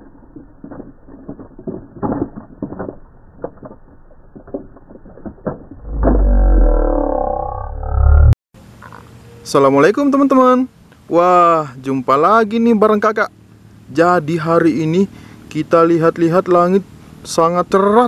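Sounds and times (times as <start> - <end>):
toy truck clattering down dirt: 0.0 - 6.4.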